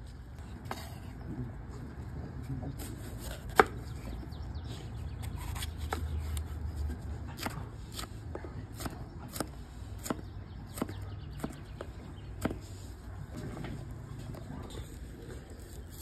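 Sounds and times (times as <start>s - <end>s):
knife chopping on wooden board: 3.2s - 3.9s, 7.4s - 12.7s.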